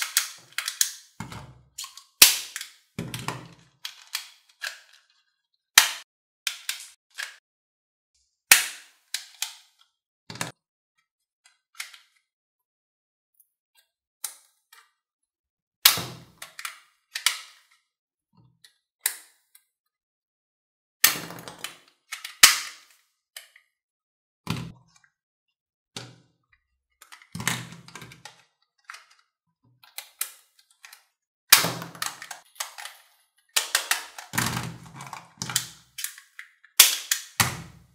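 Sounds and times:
plastic toy guns clicking: 0:00.0 - 0:01.2, 0:01.8 - 0:02.9, 0:05.8 - 0:07.4, 0:15.9 - 0:17.8, 0:21.0 - 0:23.6, 0:29.9 - 0:33.0, 0:33.6 - 0:37.6.

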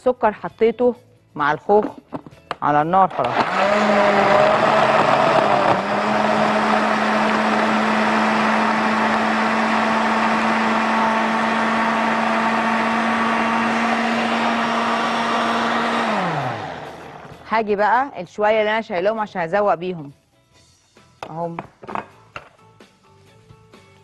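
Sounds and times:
electric blender running: 0:03.1 - 0:17.4.

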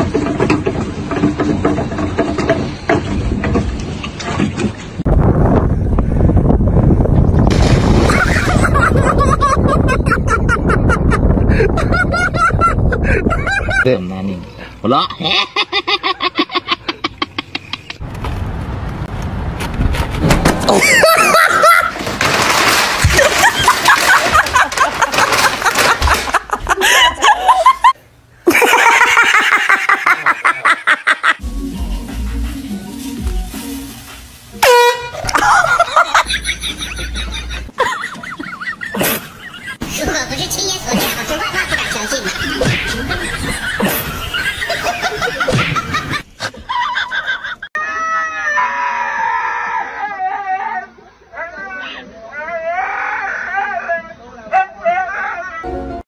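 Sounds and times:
people laughing: 0:08.1 - 0:13.9, 0:20.7 - 0:22.1, 0:23.0 - 0:31.4, 0:35.2 - 0:39.8, 0:40.9 - 0:47.8.

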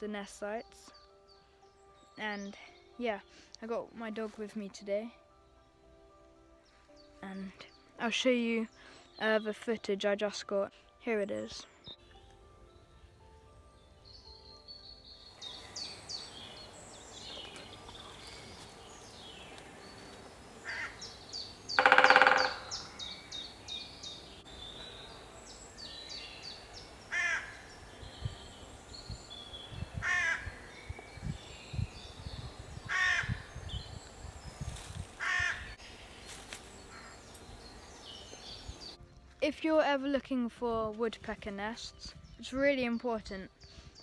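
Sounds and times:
songbirds trilling and chirping: 0:00.0 - 0:40.0, 0:41.1 - 0:44.0
harsh bird call: 0:21.7 - 0:23.1.

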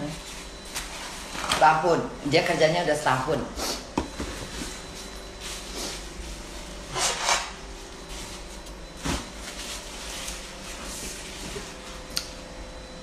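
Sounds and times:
paper napkin rustling: 0:04.5 - 0:12.0.

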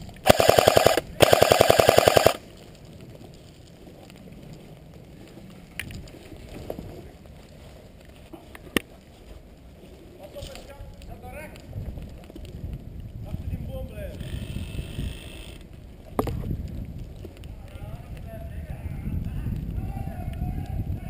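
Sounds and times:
airsoft gun firing bursts: 0:00.2 - 0:02.4.

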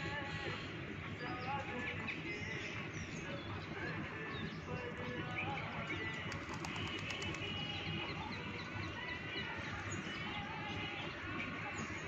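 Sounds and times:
small birds chirping: 0:01.0 - 0:12.0
pigeon wing flaps: 0:06.1 - 0:07.9.

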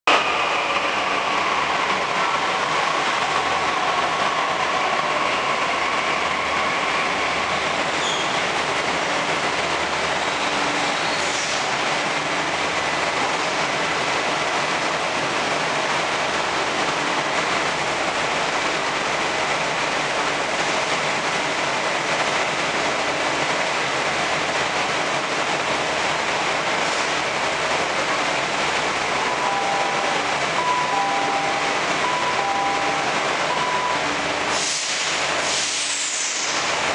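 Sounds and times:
train rumble and hiss: 0:00.1 - 0:36.9
train whine: 0:00.1 - 0:36.9
brief high squeaks: 0:08.0 - 0:08.4.

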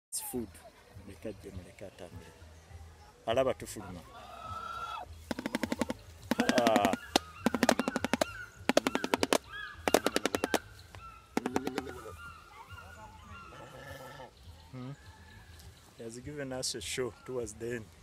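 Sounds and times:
bird bill clattering: 0:05.3 - 0:12.2.

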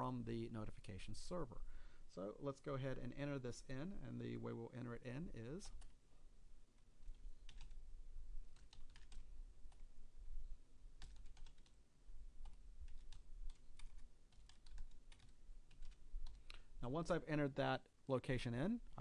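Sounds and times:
typing on computer keyboard: 0:07.4 - 0:07.8, 0:08.5 - 0:09.8, 0:11.0 - 0:11.8, 0:12.4 - 0:16.6.

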